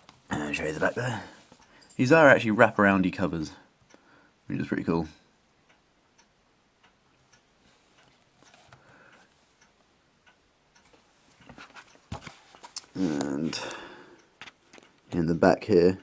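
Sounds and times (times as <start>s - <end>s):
paperback book pages rustling: 8.0s - 8.8s, 11.5s - 13.4s.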